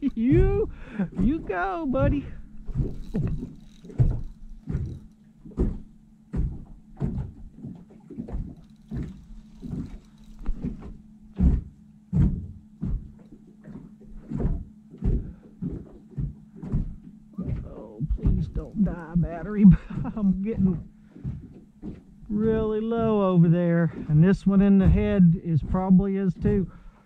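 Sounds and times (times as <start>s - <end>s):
low steady hum: 0.0s - 27.0s
fishing reel drag slipping: 2.5s - 5.3s, 8.4s - 11.1s.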